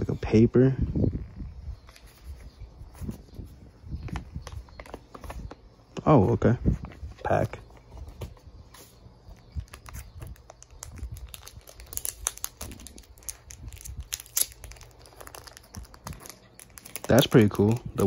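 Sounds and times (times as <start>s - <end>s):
plastic wrapping crinkling: 9.4s - 18.0s.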